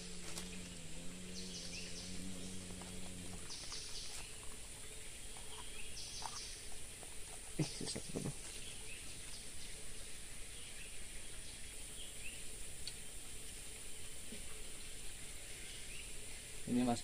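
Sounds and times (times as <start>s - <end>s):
faint bird chirps: 0.0s - 13.2s
high insect drone: 0.0s - 17.0s.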